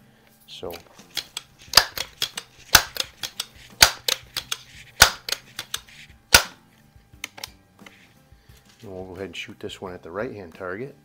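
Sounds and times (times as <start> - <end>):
air rifle pump clacks: 0.7 - 6.6.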